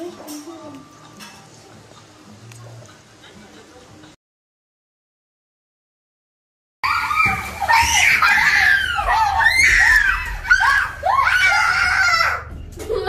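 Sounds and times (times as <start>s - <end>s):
girls shrieking with laughter: 6.8s - 12.5s.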